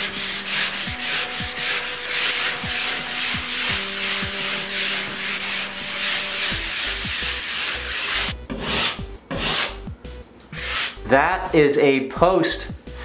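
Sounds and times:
sandpaper rasping on plaster: 0:00.0 - 0:09.8, 0:10.6 - 0:11.0.

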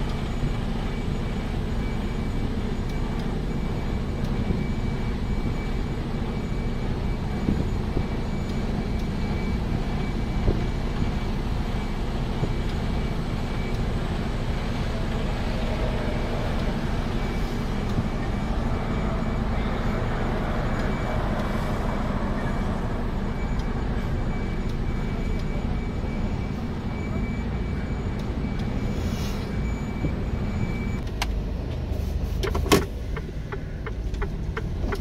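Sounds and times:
road noise: 0:00.0 - 0:35.0
truck engine drone: 0:00.0 - 0:35.0.

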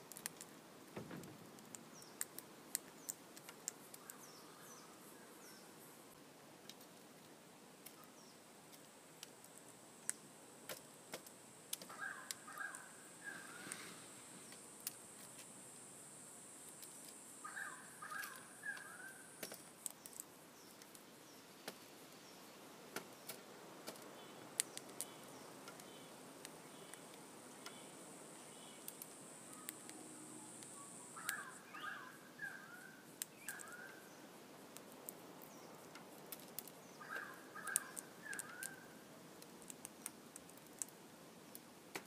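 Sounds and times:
beak clicking on seed: 0:01.5 - 0:04.2, 0:23.3 - 0:27.8, 0:33.2 - 0:33.8, 0:34.7 - 0:38.8, 0:39.4 - 0:42.0
bird chirping: 0:01.8 - 0:06.2, 0:11.9 - 0:14.6, 0:17.4 - 0:21.5, 0:24.0 - 0:34.3, 0:36.6 - 0:39.0.

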